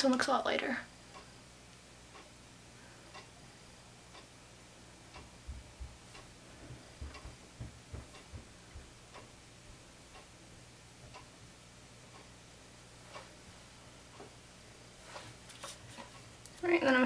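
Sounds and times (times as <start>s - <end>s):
faint low hum: 0.0s - 17.0s
clock ticking: 1.1s - 1.3s, 2.1s - 2.4s, 3.1s - 3.4s, 4.1s - 4.4s, 5.0s - 10.4s, 11.0s - 11.4s, 12.0s - 12.4s, 13.0s - 13.3s
soft low thumps: 5.1s - 9.9s.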